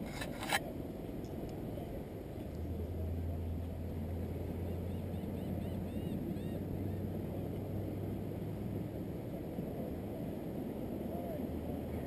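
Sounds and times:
gull calling: 4.7s - 7.1s.

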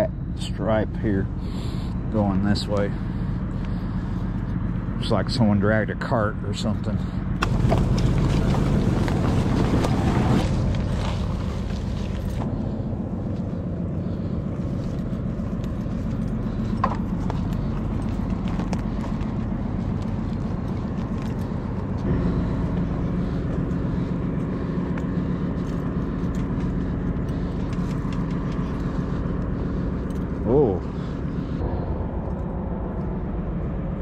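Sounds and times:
tyres crackling over dirt: 0.7s - 31.6s
electric bike motor hum: 7.2s - 34.0s.

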